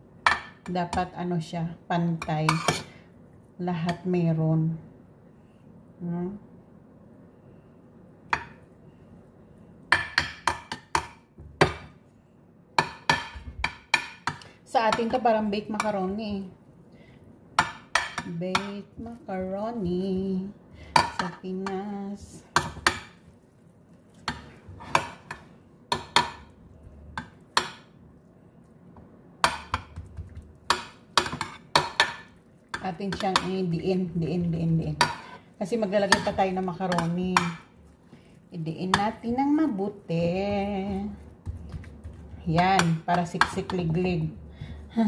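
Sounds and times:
metal spoon scraping baking dish: 2.4s - 2.9s.

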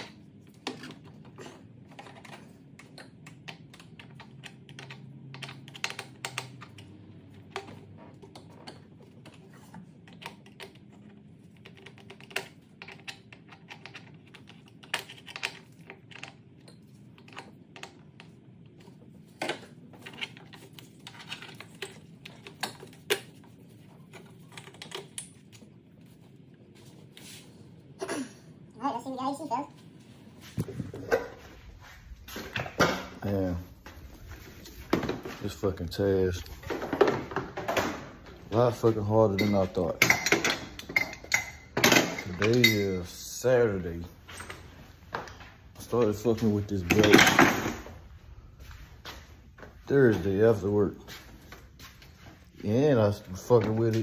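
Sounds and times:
engine parts being handled: 30.4s - 54.0s.

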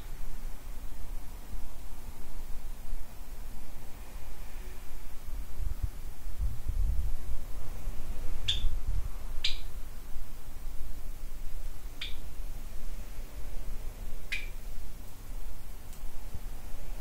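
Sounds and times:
low steady rumble: 0.0s - 17.0s
small bird chirping: 8.4s - 8.8s, 9.4s - 9.7s, 11.9s - 12.3s, 14.2s - 14.6s.

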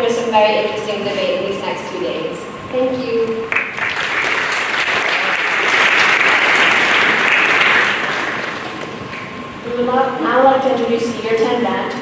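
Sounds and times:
audience applauding: 3.5s - 9.4s.

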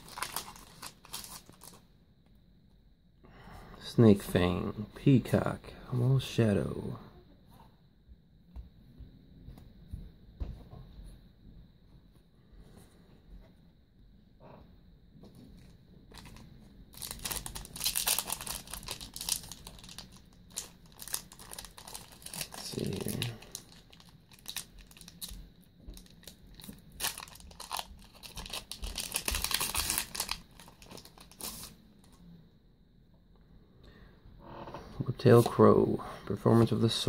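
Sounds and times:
foil wrapper tearing and crinkling: 0.0s - 1.8s, 16.1s - 16.4s, 17.0s - 31.7s.

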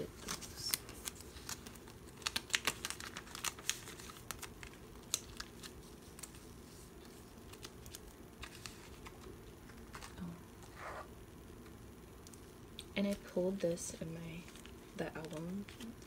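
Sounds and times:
plastic sleeves crinkling: 0.0s - 10.2s, 14.2s - 16.0s.

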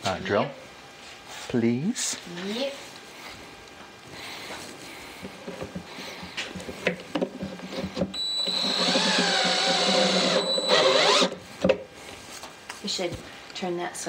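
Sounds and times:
cordless drill motor whining: 8.1s - 11.4s.

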